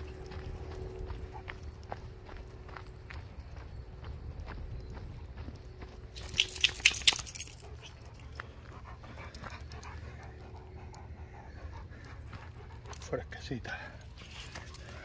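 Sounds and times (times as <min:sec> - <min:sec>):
high sharp jingling: 0:06.2 - 0:08.3.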